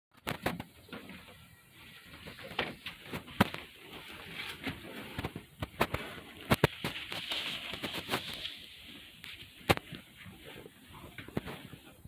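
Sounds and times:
fabric cover rustling: 2.7s - 12.0s.

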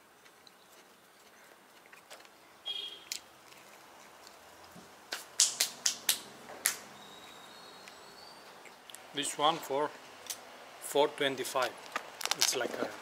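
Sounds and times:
hands clapping and brushing: 5.1s - 6.9s.

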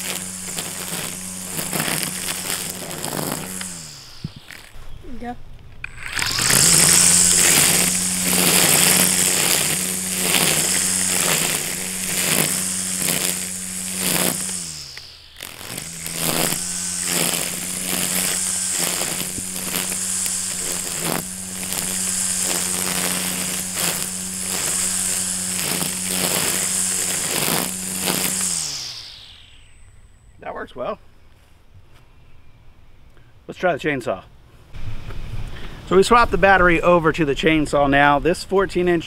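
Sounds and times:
string trimmer cutting grass: 0.0s - 30.3s.

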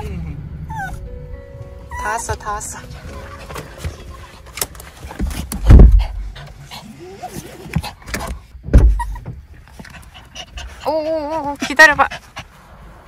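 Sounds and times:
dog whining: 0.6s - 1.1s, 1.8s - 2.4s, 8.9s - 9.4s
dog panting: 1.9s - 8.5s, 9.1s - 13.0s
heavy deep thumps: 5.2s - 6.5s, 7.8s - 9.5s.

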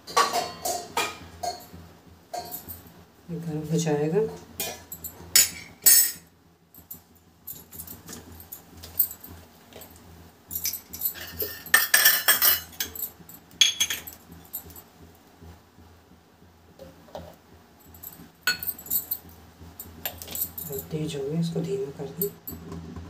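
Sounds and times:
kitchen utensils jingling: 10.6s - 14.8s, 18.1s - 19.2s
spoon clinking: 13.6s - 14.2s, 18.5s - 19.0s.

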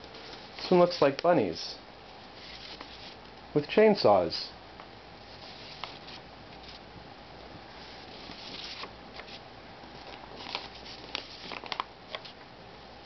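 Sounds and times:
paper sheets rustling: 2.4s - 3.2s, 5.3s - 6.8s, 7.8s - 9.4s, 10.0s - 12.4s.

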